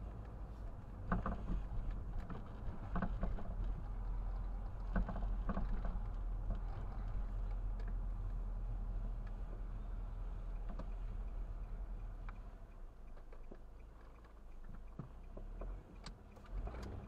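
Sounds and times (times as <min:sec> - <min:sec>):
car interior road rumble: 0:00.0 - 0:17.0.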